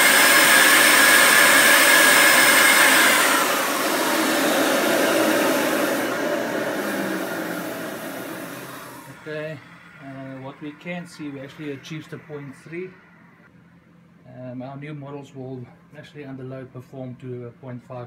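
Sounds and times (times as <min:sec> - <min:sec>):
electric turbo whine: 0:00.0 - 0:13.5
rush of air: 0:02.2 - 0:09.2.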